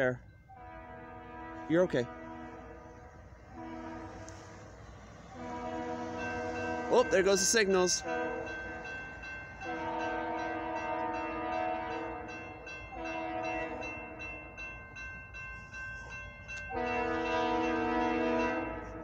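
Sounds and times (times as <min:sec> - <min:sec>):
crossing bell ringing: 0:00.0 - 0:19.0
locomotive air horn blasts: 0:00.6 - 0:04.7, 0:05.3 - 0:08.8, 0:09.6 - 0:14.0, 0:16.6 - 0:19.0.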